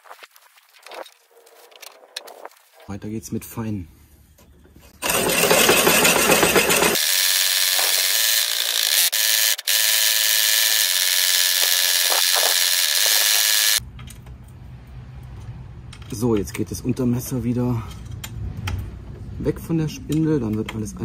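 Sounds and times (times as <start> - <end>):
power drill grinding mower blades: 5.0 - 13.8.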